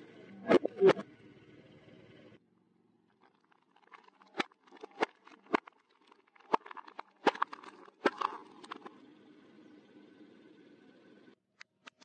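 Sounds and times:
plastic cups cracking under tyre: 3.2 - 8.9.

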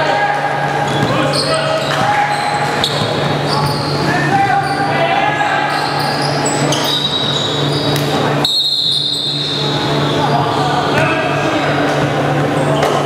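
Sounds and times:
players' voices: 0.0 - 8.4, 9.3 - 13.0
steady low hum: 0.0 - 13.0
sneakers squeaking: 0.6 - 13.0.

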